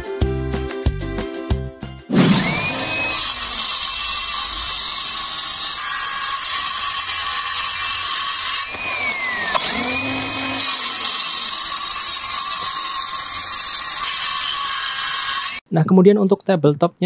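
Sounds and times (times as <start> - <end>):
circular saw cutting plywood: 2.1 - 15.6.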